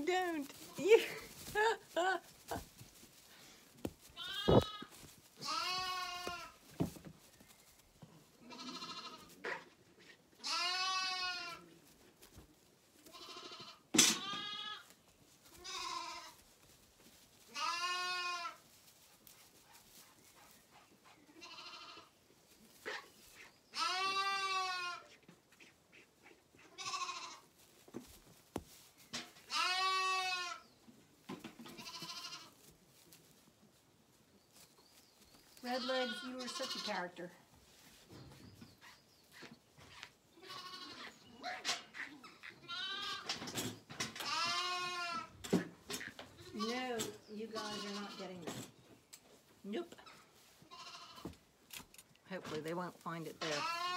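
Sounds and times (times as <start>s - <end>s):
lambs bleating: 4.1s - 6.6s, 8.4s - 9.7s, 10.4s - 11.7s, 13.0s - 16.4s, 17.5s - 18.6s, 21.4s - 22.1s, 22.9s - 25.2s, 26.6s - 27.5s, 29.5s - 30.6s, 31.7s - 32.6s, 35.6s - 37.2s, 40.4s - 43.3s, 44.2s - 45.4s, 46.0s - 48.4s, 50.1s - 51.3s, 53.4s - 53.9s.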